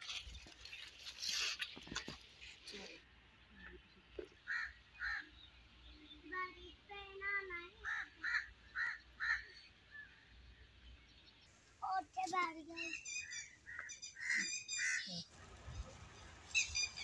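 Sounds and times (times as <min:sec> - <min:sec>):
crow cawing: 0:04.4 - 0:05.3, 0:07.8 - 0:09.6.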